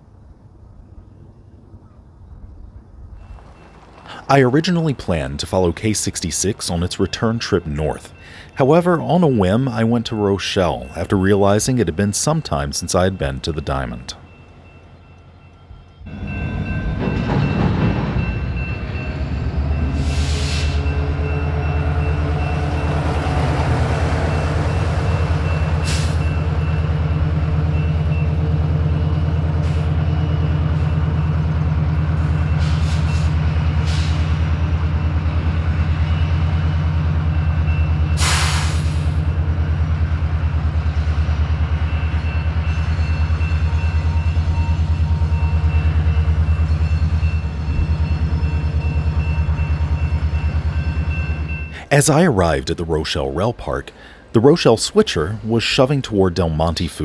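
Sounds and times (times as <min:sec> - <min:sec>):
diesel locomotive engine drone: 0:00.0 - 0:57.0
air hiss blasts: 0:38.2 - 0:39.1.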